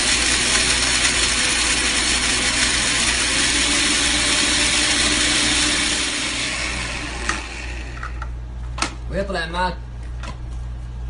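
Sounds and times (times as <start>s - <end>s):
electric blender grinding: 0.0s - 8.3s.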